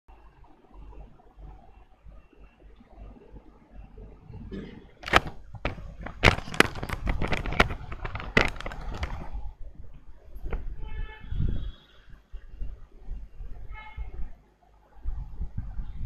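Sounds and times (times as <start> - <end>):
sharp clicks and knocks: 4.5 - 9.4.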